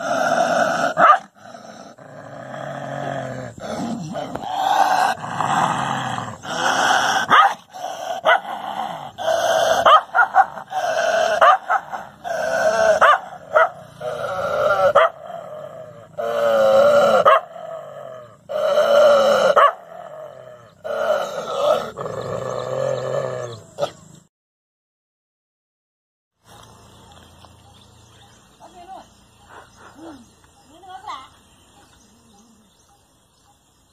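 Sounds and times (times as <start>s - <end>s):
dog barking: 1.0s - 1.3s, 7.2s - 8.5s, 9.8s - 10.7s, 11.3s - 12.1s, 13.0s - 13.9s, 14.9s - 15.2s, 17.2s - 17.6s, 19.5s - 19.9s.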